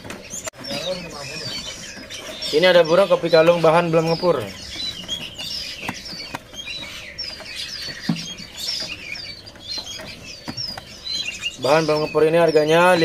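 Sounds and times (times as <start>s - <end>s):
songbirds chirping: 0.0s - 13.0s.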